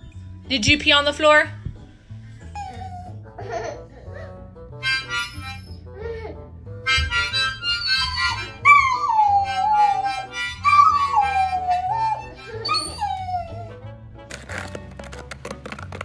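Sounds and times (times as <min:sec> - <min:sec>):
harmonica chords: 0:04.7 - 0:12.8
puppy howling: 0:07.6 - 0:13.8.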